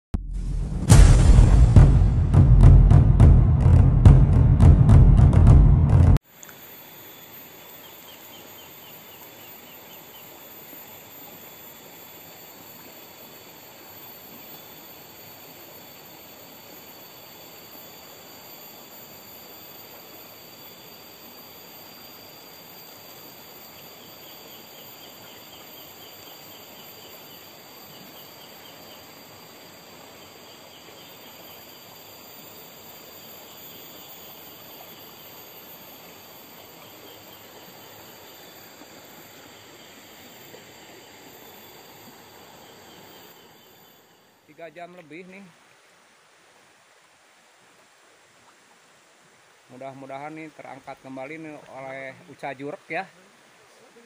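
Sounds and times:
background hiss: 0:06.2 - 0:54.0
high insect drone: 0:06.3 - 0:54.0.

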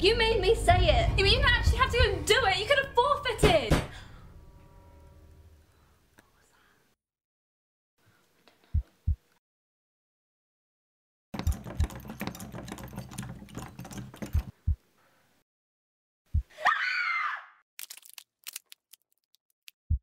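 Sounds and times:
low rumble: 0:00.0 - 0:03.3.

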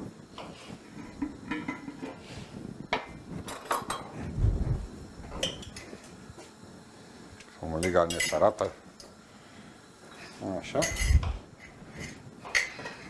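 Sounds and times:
pots and utensils clinking: 0:00.4 - 0:04.2, 0:05.3 - 0:06.1, 0:07.8 - 0:09.2, 0:10.2 - 0:13.0.

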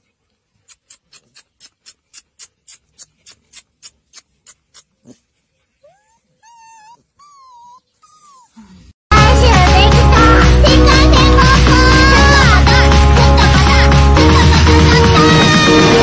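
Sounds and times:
quick even ticking: 0:00.6 - 0:04.9
puppy whimpering: 0:05.8 - 0:08.8
loud music: 0:09.1 - 0:16.0.

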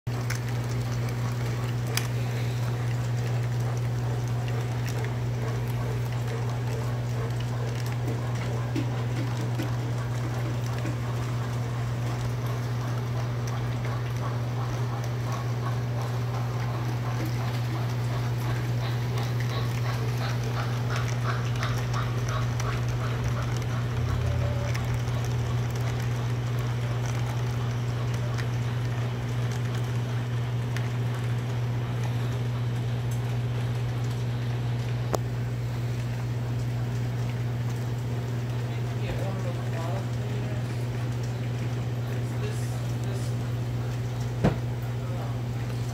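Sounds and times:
low electrical hum: 0:00.1 - 0:45.9.

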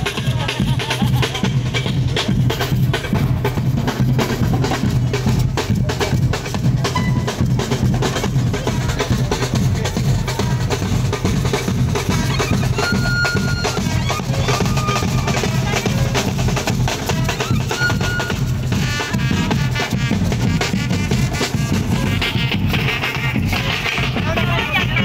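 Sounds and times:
drum band playing: 0:00.0 - 0:25.0
short high held notes: 0:06.9 - 0:07.4.

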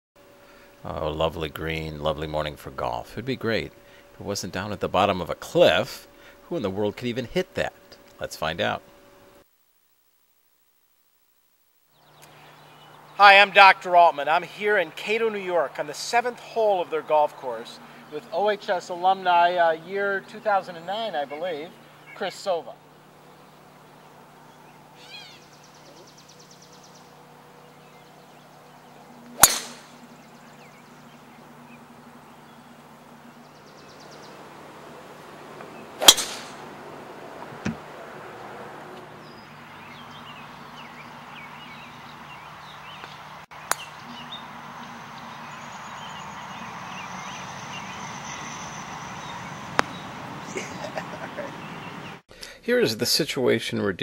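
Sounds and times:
golf driver striking ball: 0:29.3 - 0:32.8, 0:35.6 - 0:37.9.

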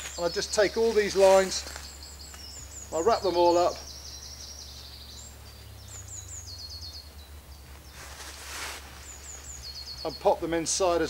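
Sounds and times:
songbird singing: 0:00.0 - 0:11.0
fabric rustle: 0:07.8 - 0:09.6.

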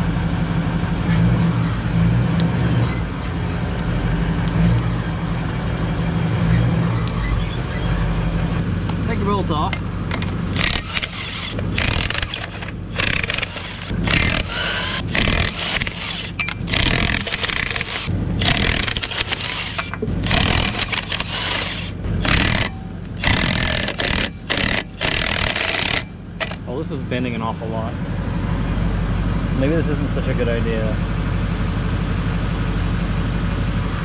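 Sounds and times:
impact wrench hammering: 0:10.1 - 0:26.6.

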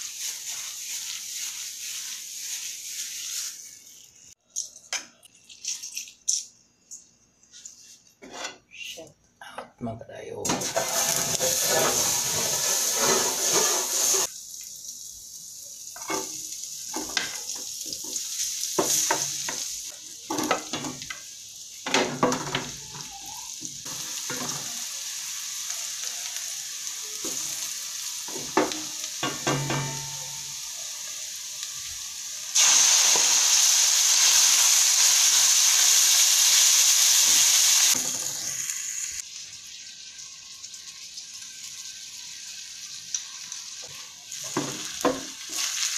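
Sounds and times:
meat sizzling loudly: 0:00.0 - 0:04.4, 0:10.5 - 0:45.9
food sizzling in a pan: 0:00.0 - 0:04.5, 0:10.5 - 0:45.9
wooden spatula knocking on pan: 0:28.3 - 0:30.2.

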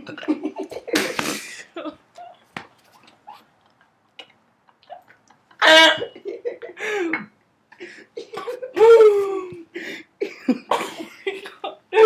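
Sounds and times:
woman coughing and gagging: 0:05.6 - 0:06.3, 0:08.2 - 0:08.8, 0:10.2 - 0:12.0
breaths: 0:06.8 - 0:08.2, 0:09.7 - 0:10.2.

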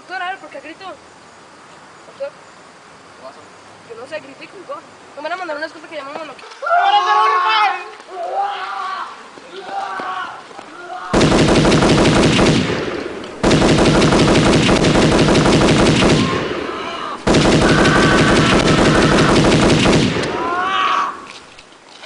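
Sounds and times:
automatic gunfire bursts: 0:11.1 - 0:20.6.

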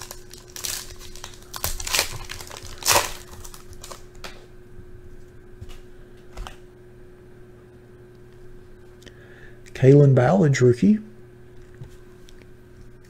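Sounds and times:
foil wrapper tearing and crinkling: 0:00.0 - 0:04.3.

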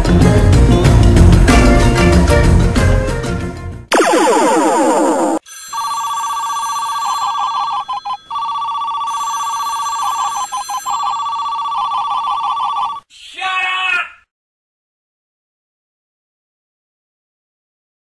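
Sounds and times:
telephone ringing: 0:04.0 - 0:13.0.

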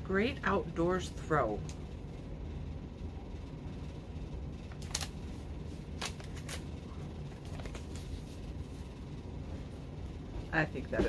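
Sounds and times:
low steady hum: 0:00.0 - 0:11.0
magazine pages turning: 0:04.7 - 0:08.8.

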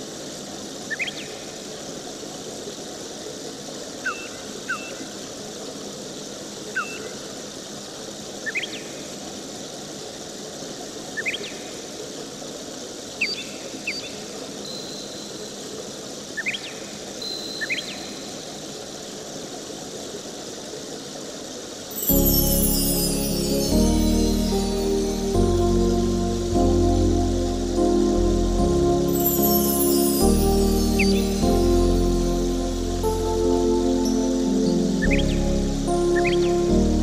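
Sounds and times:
thin high tone: 0:21.9 - 0:37.0.

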